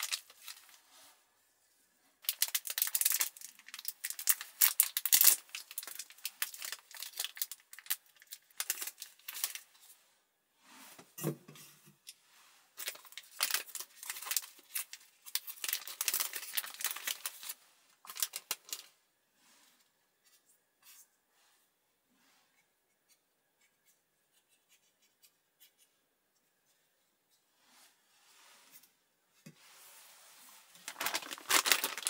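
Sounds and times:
plastic wrappers crinkling: 0.0 - 0.8, 2.2 - 9.8, 12.8 - 18.9, 30.7 - 32.0.

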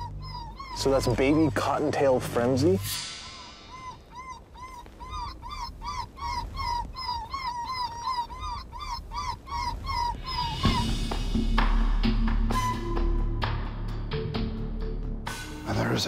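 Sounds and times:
rabbit distress call squeals: 0.0 - 11.2.

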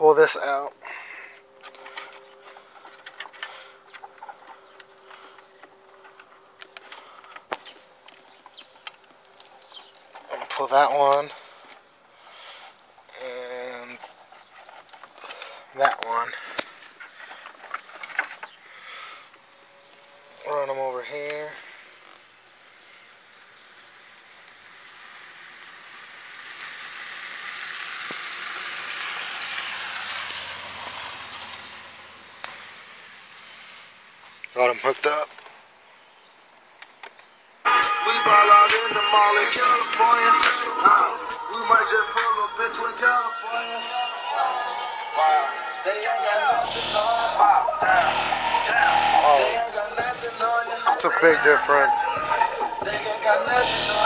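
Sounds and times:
cables rustling and scraping: 13.0 - 22.9.

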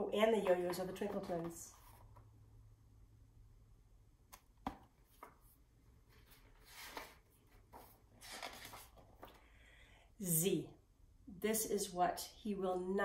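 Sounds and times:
paper rustling: 5.0 - 9.4.

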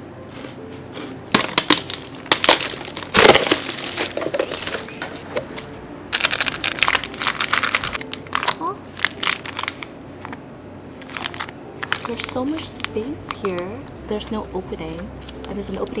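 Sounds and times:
packaging crunch: 1.0 - 5.2, 6.2 - 10.4, 11.0 - 13.5
plastic packaging crinkling: 1.3 - 5.2, 6.2 - 10.4, 11.0 - 13.7.

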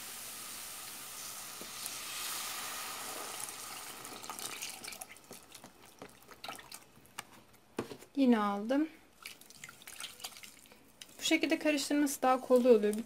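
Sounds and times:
milk pouring into a pot: 0.1 - 7.0
drips and small splashes: 4.1 - 7.1, 9.1 - 11.6.

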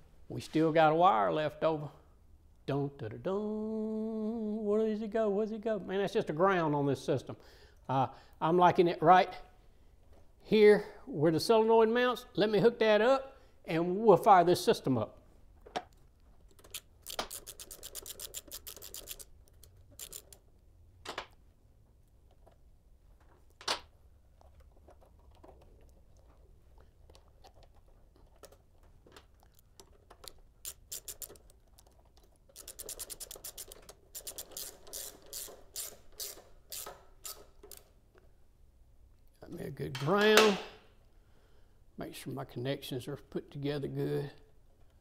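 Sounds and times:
ratchet wrench clicking: 16.6 - 20.4, 30.6 - 31.6, 32.5 - 37.9.

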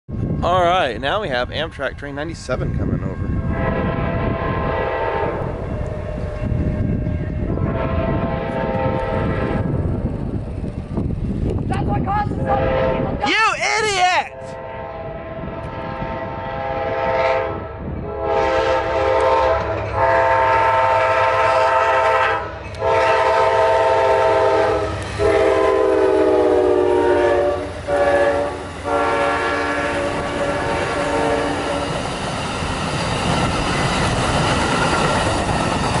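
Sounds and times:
train horn blasts: 3.4 - 9.7, 12.4 - 13.2, 14.3 - 32.0
train wheels clattering on rails: 29.6 - 36.0.

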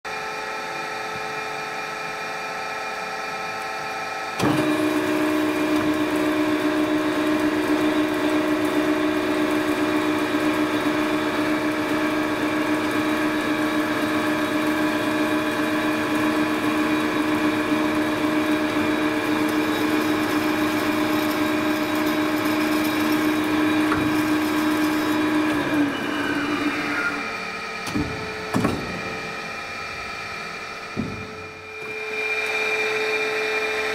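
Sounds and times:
bandsaw cutting wood: 4.4 - 33.9
knocks: 27.8 - 29.1, 30.9 - 31.5.

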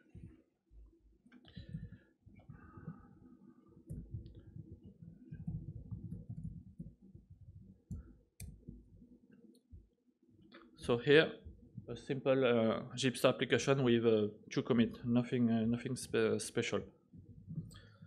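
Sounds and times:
low room rumble: 0.0 - 9.9
laptop typing and clicking: 3.9 - 8.8.

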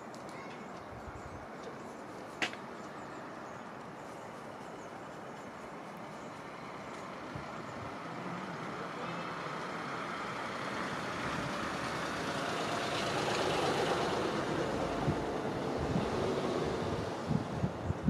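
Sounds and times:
motor vehicle approaching: 5.7 - 17.5.

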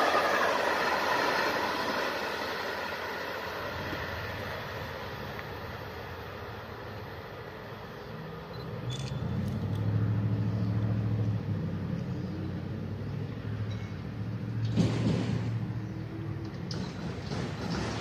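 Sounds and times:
rush of noise: 0.0 - 10.5
low engine drone: 0.0 - 16.9.

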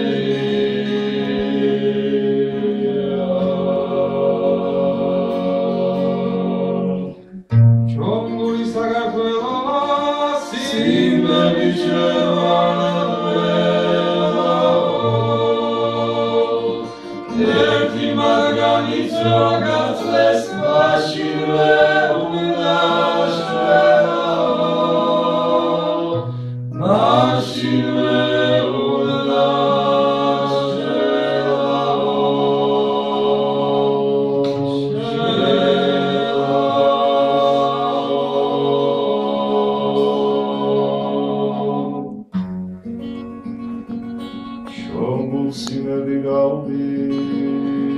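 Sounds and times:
male ensemble singing: 0.0 - 7.2, 8.0 - 42.2.

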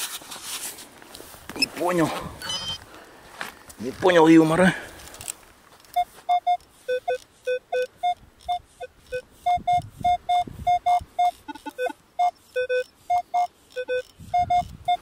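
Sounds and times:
metal detector short beeps: 2.4 - 2.8, 6.0 - 15.0.

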